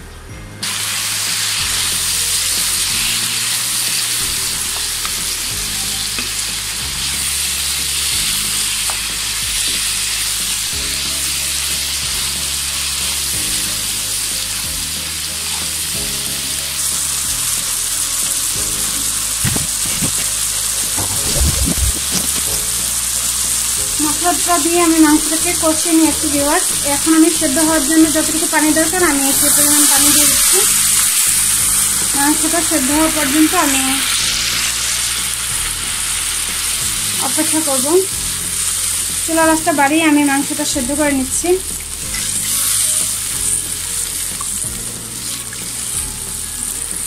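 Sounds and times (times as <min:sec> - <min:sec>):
meat sizzling in hot oil: 0:00.6 - 0:47.0
spatula scraping pan: 0:18.9 - 0:23.0.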